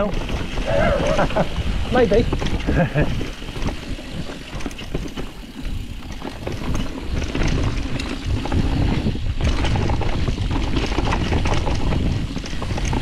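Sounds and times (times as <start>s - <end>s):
bike knocks and rattles: 0.0s - 13.0s
bike tyre noise on dirt: 0.0s - 13.0s.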